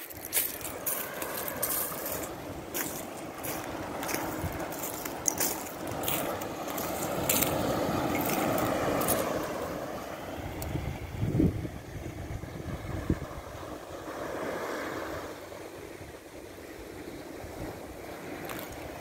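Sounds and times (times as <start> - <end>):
footsteps crunching on shells: 0.0 - 9.5
wind: 0.0 - 19.0.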